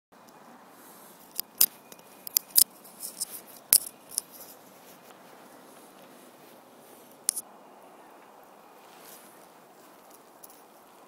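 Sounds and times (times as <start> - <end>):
faint steady hiss: 0.2 - 11.0
sharp clicks and snaps: 1.3 - 4.5.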